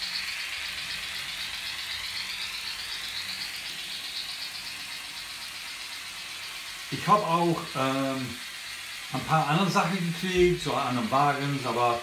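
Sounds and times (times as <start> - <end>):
high motor whir: 0.0 - 12.0
model train wheels rattling on track: 0.0 - 12.0.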